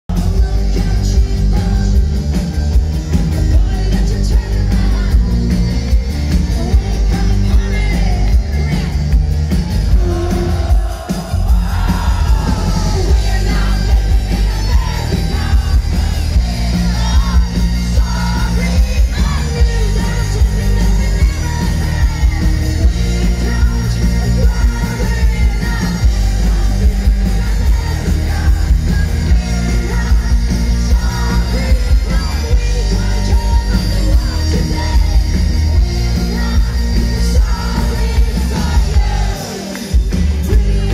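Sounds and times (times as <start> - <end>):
drums: 0.0 - 40.9
electric bass: 0.0 - 40.9
electric guitar: 0.1 - 40.9.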